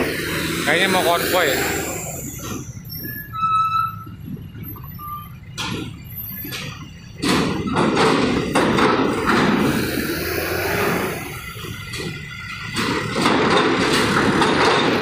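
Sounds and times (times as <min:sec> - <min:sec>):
bus clattering rumble: 0:00.0 - 0:15.0
vehicle engine and tyre rumble: 0:00.0 - 0:15.0
knocks from steel plates: 0:05.6 - 0:09.7, 0:11.5 - 0:15.0.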